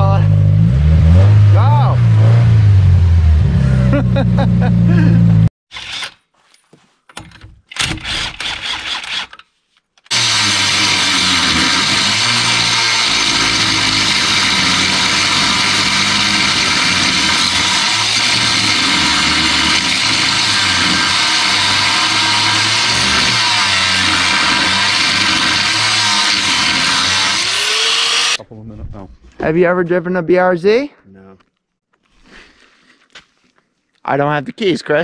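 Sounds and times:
angle grinder cutting metal: 7.8s - 9.3s, 10.1s - 28.4s.

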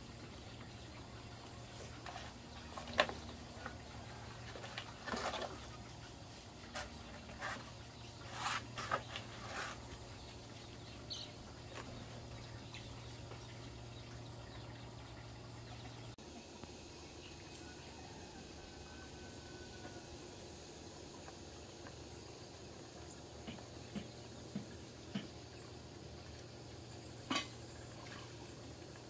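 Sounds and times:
low steady hum: 0.0s - 29.0s
bird chirp: 6.7s - 16.2s.

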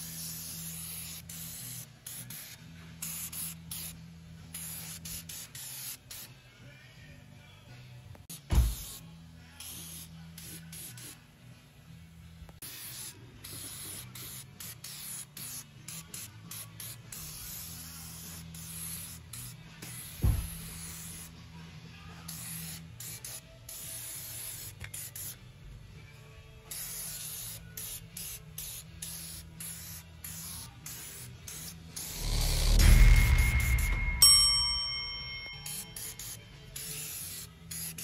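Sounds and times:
low thump: 8.5s - 8.8s, 20.2s - 20.6s, 32.2s - 34.3s
aerosol spray hissing: 8.5s - 9.0s, 26.7s - 32.8s.

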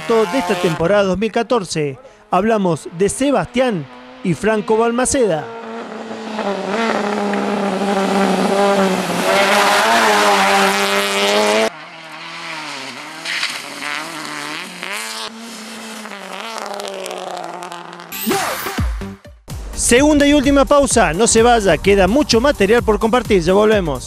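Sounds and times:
rally car engine revving: 0.0s - 1.0s, 2.0s - 18.3s.

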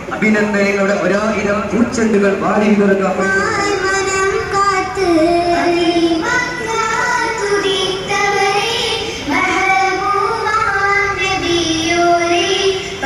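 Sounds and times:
child singing: 3.2s - 13.0s.

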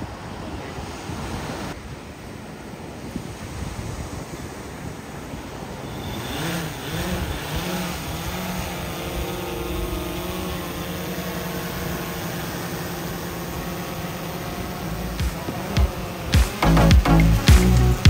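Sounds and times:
drone motors and propellers humming: 0.0s - 18.0s.

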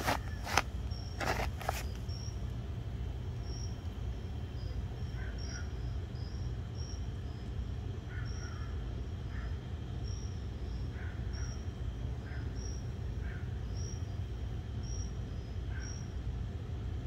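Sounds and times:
crickets chirping: 0.0s - 17.0s
lower paired chirp: 1.8s - 2.5s, 3.3s - 8.8s.

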